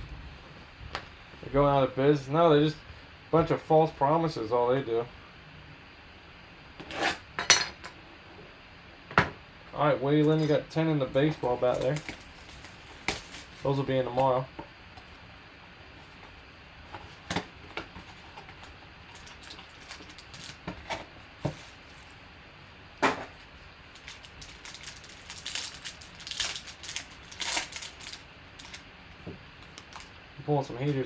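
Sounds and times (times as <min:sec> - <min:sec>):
plastic wrapping crinkling and tearing: 0:11.3 - 0:14.2, 0:17.9 - 0:22.2, 0:23.4 - 0:28.8, 0:29.6 - 0:30.1.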